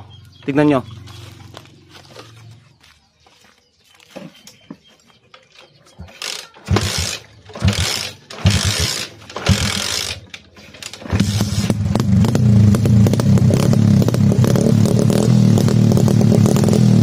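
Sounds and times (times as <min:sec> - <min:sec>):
engine turning over thumps: 0:06.7 - 0:17.0.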